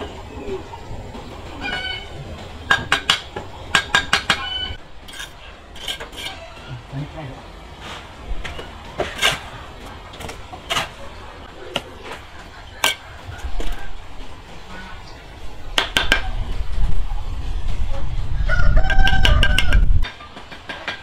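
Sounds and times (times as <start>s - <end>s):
rooster crowing: 18.4s - 19.8s.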